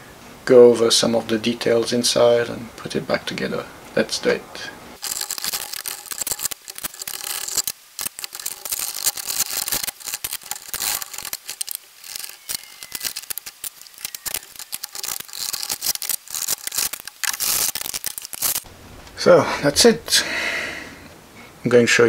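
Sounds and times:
plastic parts clicking and rattling: 5.0 - 18.7.

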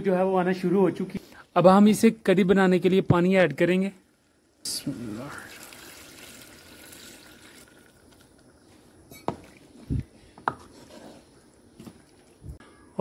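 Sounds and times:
water pouring into a pot: 4.0 - 8.6, 11.3 - 12.5.

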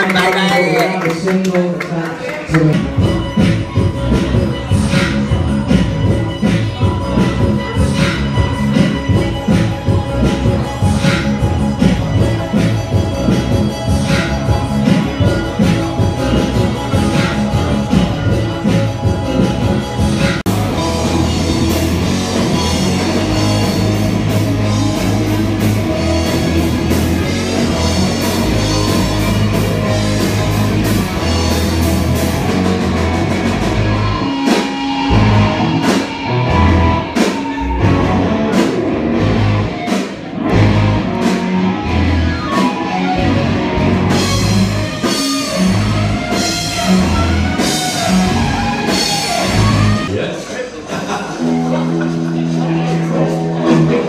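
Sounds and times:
loud rock music: 0.0 - 54.0.

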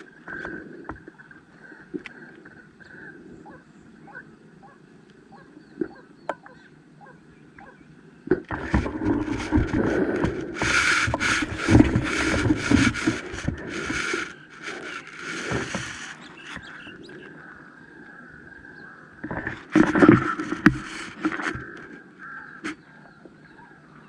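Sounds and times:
rifle handling rustling and scraping: 8.5 - 16.9, 19.3 - 22.0.

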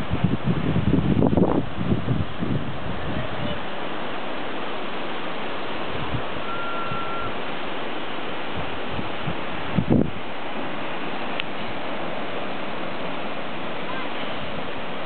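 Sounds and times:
wind on microphone: 0.0 - 15.0
surf breaking on rocks: 1.2 - 15.0
short thin whistle: 6.4 - 7.4.

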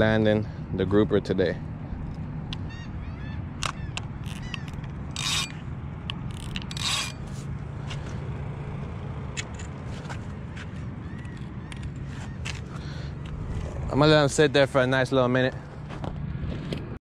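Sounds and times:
steady low rumble: 0.0 - 17.0
fishing line zipping: 4.2 - 5.6, 6.3 - 7.5
fishing reel scrapes and rubs: 4.2 - 5.6, 6.3 - 7.5.

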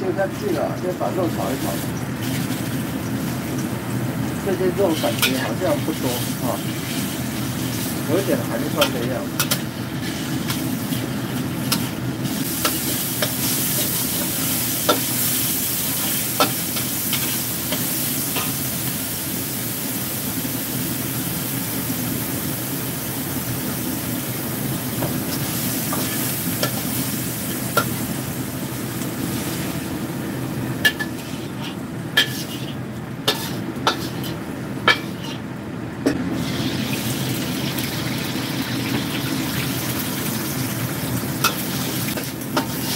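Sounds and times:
meat sizzling in a wok: 0.0 - 35.5, 36.1 - 42.9
metal ladle scraping a wok: 30.9 - 35.4, 41.5 - 42.9.

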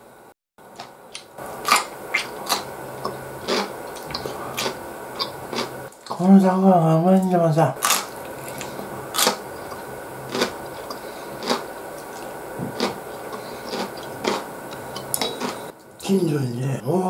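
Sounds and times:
crunchy pickle chewing: 1.2 - 6.2, 7.8 - 15.9.

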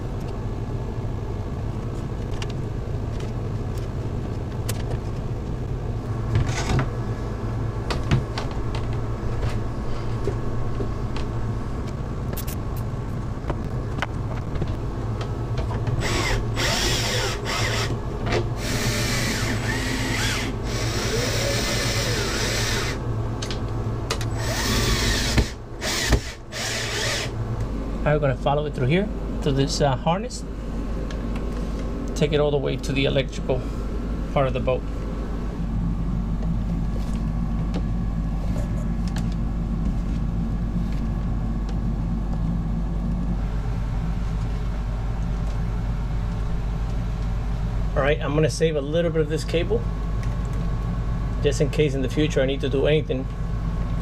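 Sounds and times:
steady mechanical hum: 0.0 - 54.0.

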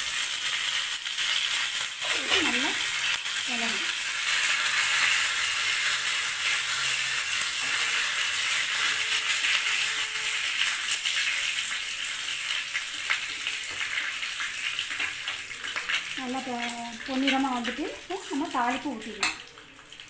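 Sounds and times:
oil sizzling in pan: 0.0 - 20.0
spoon scraping pan: 4.3 - 10.9.

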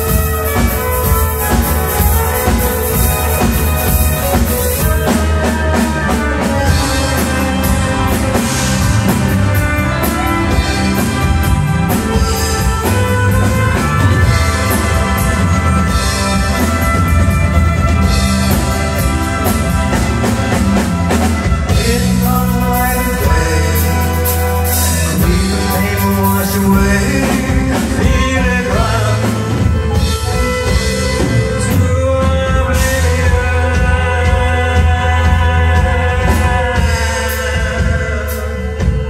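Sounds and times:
bass guitar: 0.0 - 39.0
drum kit: 0.0 - 39.0
electric guitar: 0.0 - 39.0
violin: 0.0 - 39.0
man singing: 19.4 - 39.0.

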